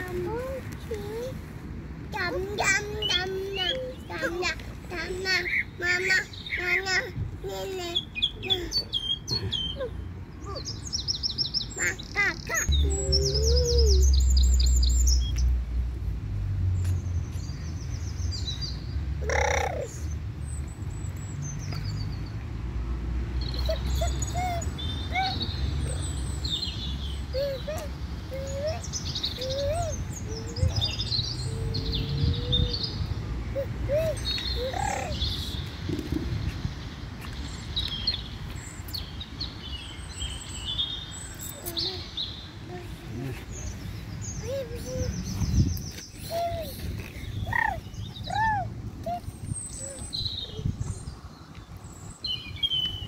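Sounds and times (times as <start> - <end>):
birds chirping: 23.4 - 53.0.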